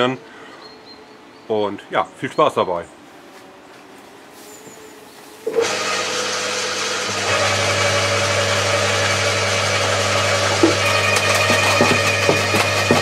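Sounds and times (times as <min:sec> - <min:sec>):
garden shredder motor humming: 0:05.4 - 0:13.0.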